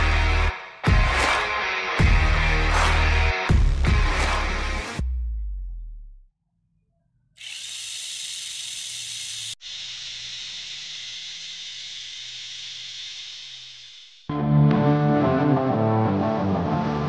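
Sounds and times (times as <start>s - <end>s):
toy car electric motor whirring: 7.4s - 14.3s.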